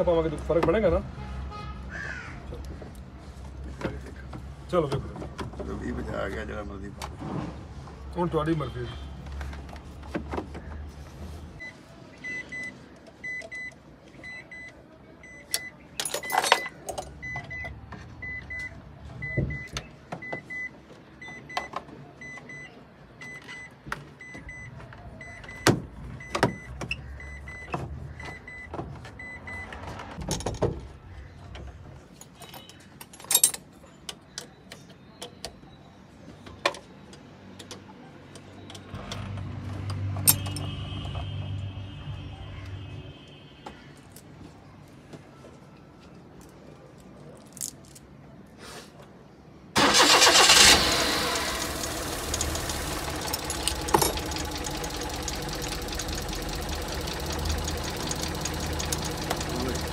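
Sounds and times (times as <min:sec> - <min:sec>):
hand tools clanking on engine: 0:51.5 - 0:56.0.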